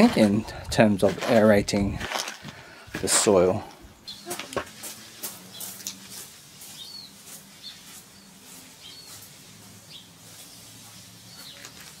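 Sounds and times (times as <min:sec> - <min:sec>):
birds chirping: 0:03.7 - 0:12.0.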